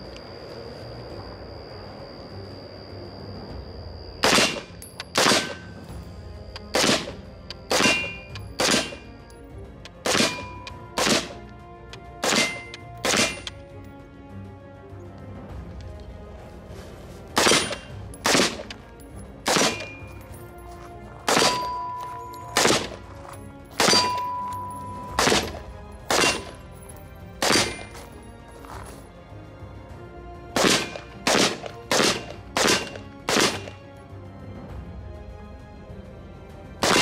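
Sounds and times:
ringing tone: 0.0 - 6.1, 21.4 - 22.6, 23.8 - 25.2
rifle shots: 4.2 - 5.7, 6.6 - 9.1, 10.0 - 11.4, 12.2 - 13.5, 17.4 - 18.8, 19.5 - 20.0, 21.3 - 21.9, 22.5 - 23.1, 23.8 - 24.3, 25.2 - 26.6, 27.4 - 28.0, 30.6 - 33.8.

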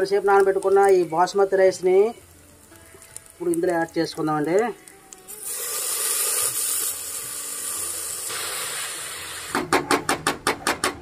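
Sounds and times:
rice hissing and sizzling in oil: 0.0 - 9.8.

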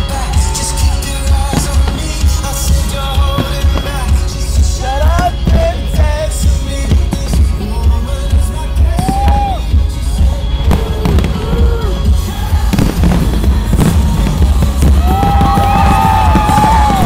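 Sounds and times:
fireworks bursting and crackling: 0.0 - 17.0
loud music with heavy bass: 0.0 - 17.0.

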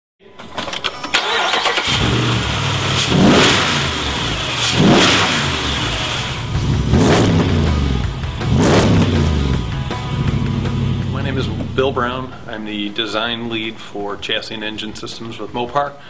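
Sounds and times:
engine cranking and starting: 0.4 - 7.5
engine revving: 1.2 - 12.1.

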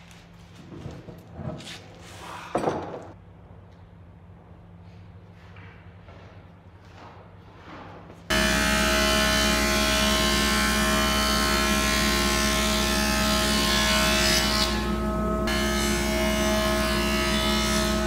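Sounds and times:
planer cutting wood: 8.3 - 18.0
thickness planer running: 8.3 - 18.0.

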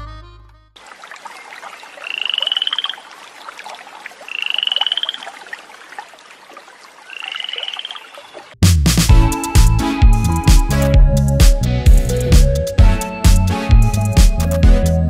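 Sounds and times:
music: 0.0 - 0.8, 8.6 - 15.0
trilled animal calls: 1.1 - 8.5.

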